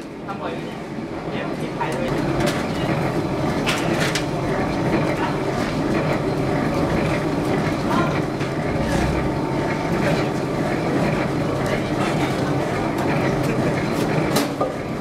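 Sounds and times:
machine running: 5.9s - 11.7s.

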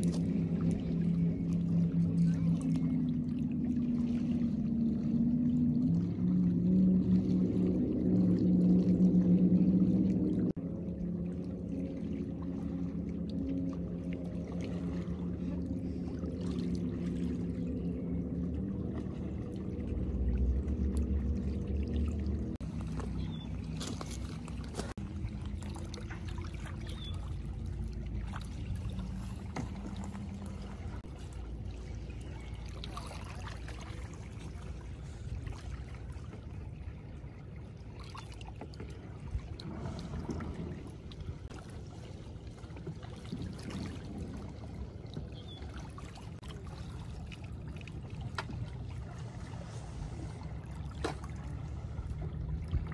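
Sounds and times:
boat engine humming: 0.0s - 52.9s
waves lapping at shore: 0.0s - 52.9s.

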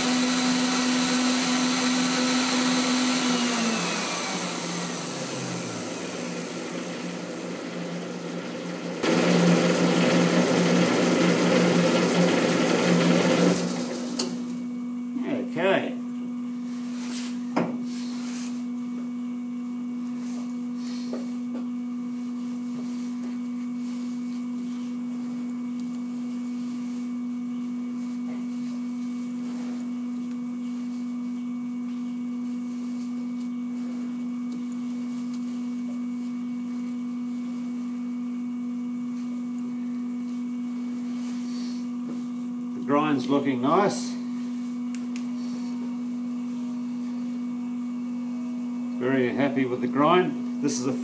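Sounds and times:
grinder humming: 0.0s - 14.6s.

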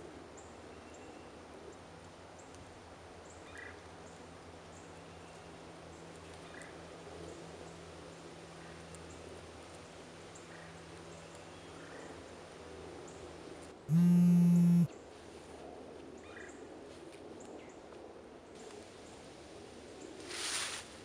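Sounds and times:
mobile phone vibrating buzz: 13.9s - 14.9s.

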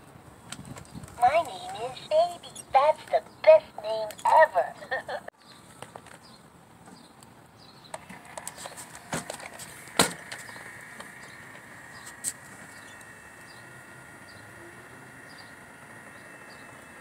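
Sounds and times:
faint high hum: 1.0s - 5.3s, 8.1s - 17.0s.

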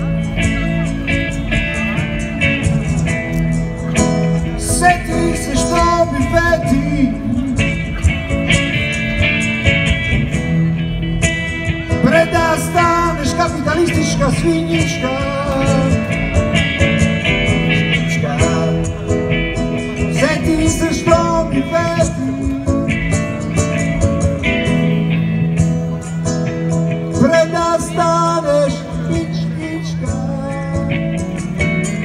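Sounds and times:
electric guitars: 0.0s - 32.0s
person singing: 4.4s - 8.4s, 11.9s - 19.2s, 20.0s - 23.4s, 27.1s - 32.0s.

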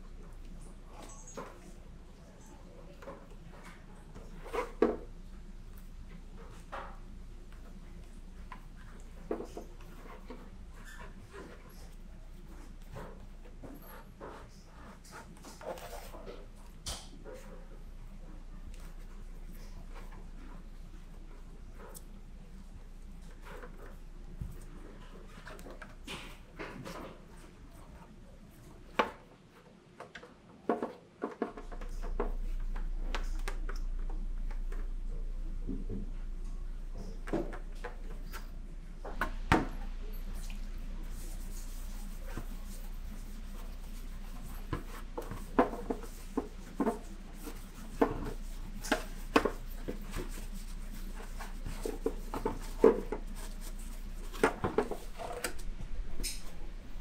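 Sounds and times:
low steady hum: 31.5s - 57.0s
plastic helmet handling: 41.1s - 55.7s.

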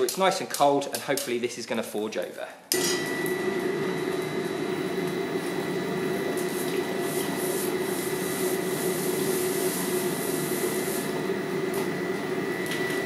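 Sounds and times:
air blower whirring hum: 2.7s - 13.0s.

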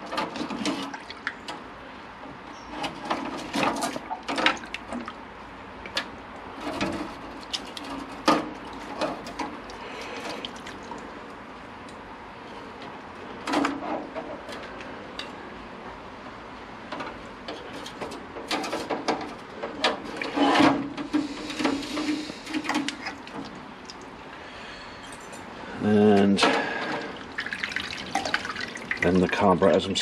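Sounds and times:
liquid splashing and dripping: 0.8s - 1.6s, 7.4s - 11.4s, 22.6s - 24.4s, 27.0s - 29.4s.

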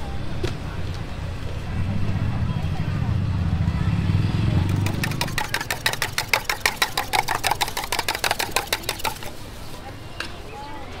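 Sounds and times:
low hum: 1.1s - 6.3s.

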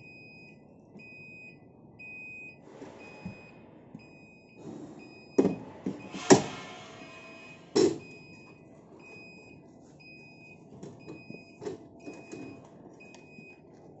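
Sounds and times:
warning beeper: 5.3s - 7.8s.

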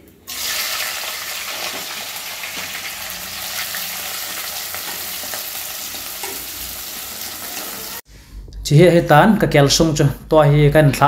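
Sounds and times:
onions sizzling in hot oil: 0.3s - 8.1s.

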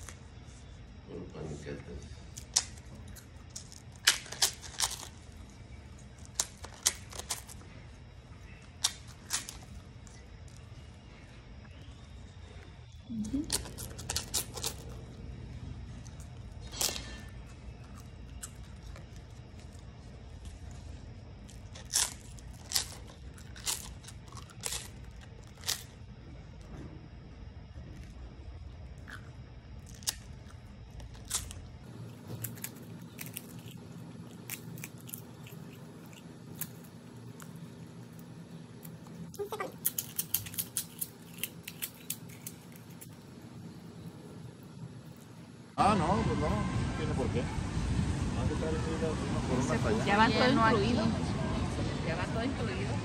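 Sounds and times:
wafer crunching while chewed: 2.2s - 26.7s, 27.6s - 45.5s.

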